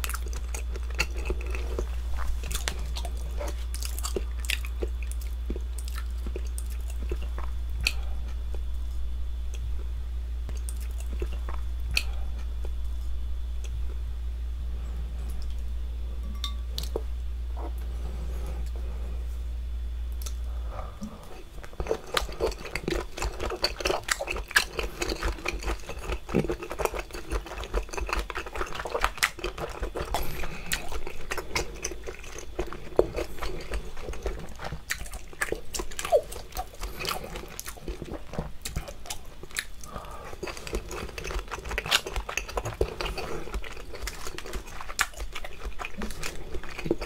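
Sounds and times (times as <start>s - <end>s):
wet chewing and mouth smacking: 0.0s - 8.7s, 10.5s - 12.8s, 20.1s - 20.4s, 21.0s - 47.0s.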